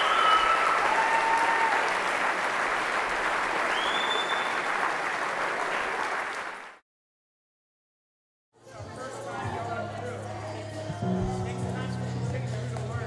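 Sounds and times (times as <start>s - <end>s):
crowd applauding: 0.0s - 6.8s
crowd cheering: 0.0s - 6.8s.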